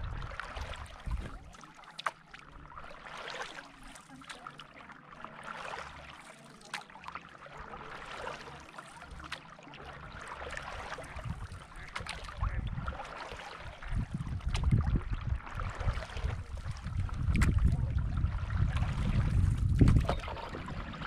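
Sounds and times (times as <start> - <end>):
paddle splashing water: 0.0 - 21.0
water lapping at board: 0.0 - 21.0.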